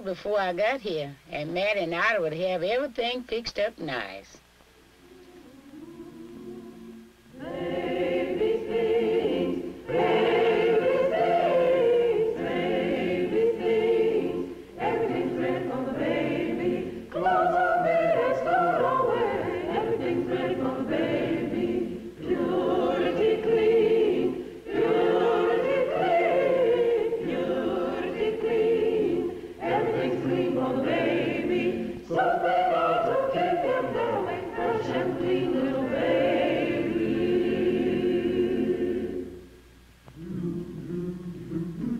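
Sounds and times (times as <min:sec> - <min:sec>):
choir singing unaccompanied: 0:05.0 - 0:41.9.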